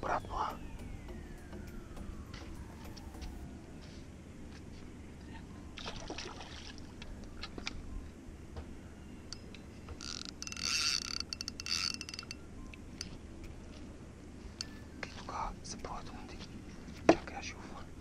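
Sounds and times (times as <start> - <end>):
water splashing against boat hull: 5.8 - 7.8
fishing reel whirring: 9.4 - 13.2.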